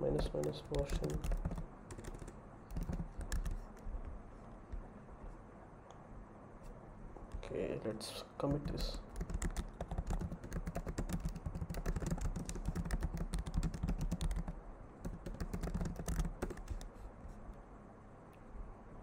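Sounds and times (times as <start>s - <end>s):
typing on computer keyboard: 0.0s - 3.9s, 8.6s - 17.0s.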